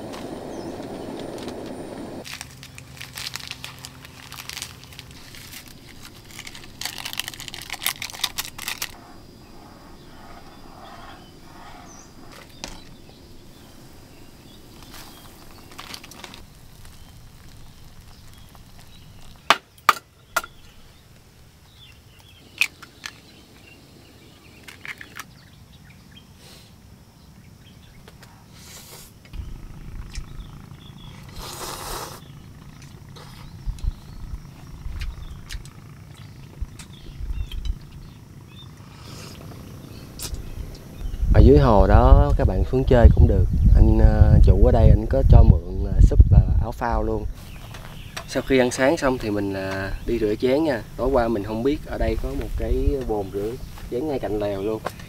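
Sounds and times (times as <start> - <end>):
faint steady hiss: 0.0 - 55.0
plastic packet crinkling: 2.2 - 9.0.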